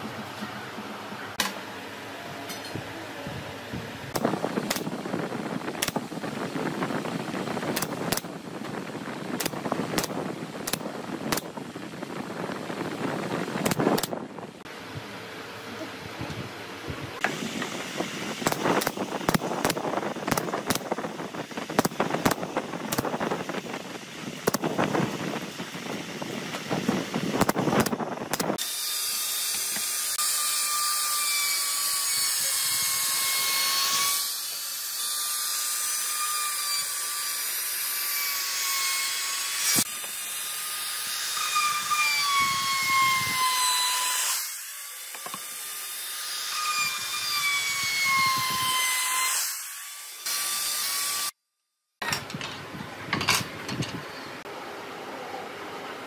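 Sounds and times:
pneumatic nail gun firing: 4.2s - 5.0s, 5.8s - 6.1s, 7.7s - 8.3s, 9.4s - 11.5s, 13.6s - 14.2s, 18.4s - 21.0s, 21.7s - 23.2s, 24.4s - 24.8s, 27.3s - 30.4s, 39.6s - 40.3s
table saw whine: 28.6s - 51.4s.

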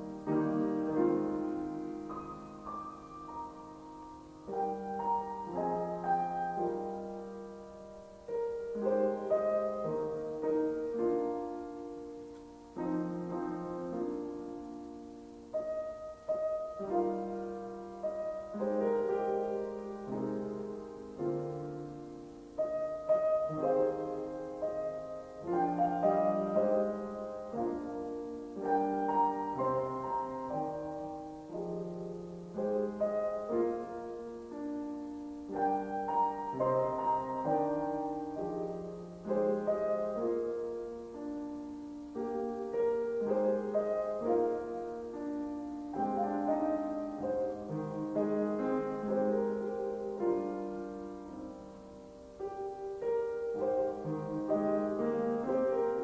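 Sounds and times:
slow piano piece: 0.0s - 56.0s.

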